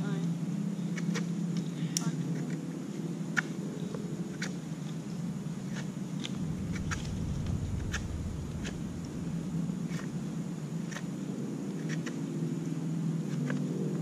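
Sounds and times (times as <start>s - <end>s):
low hum: 6.1s - 11.4s.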